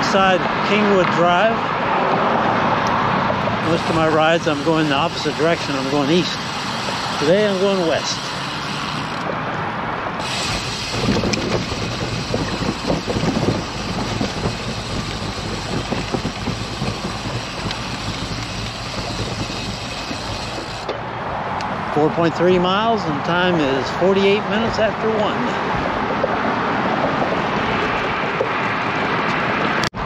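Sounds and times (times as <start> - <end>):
wind and road noise: 0.0 - 30.0
rapid bicycle ticking: 3.6 - 9.3, 10.2 - 20.9.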